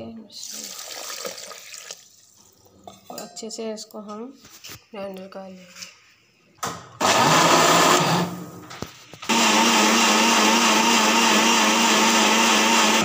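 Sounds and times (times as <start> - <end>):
blender motor running: 7.0 - 8.4, 9.3 - 13.0.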